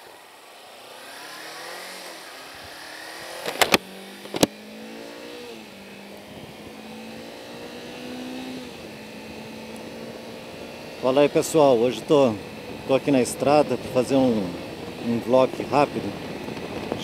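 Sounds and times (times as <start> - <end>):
motorcycle engine accelerating: 0.0 - 17.0
wind noise: 11.6 - 17.0.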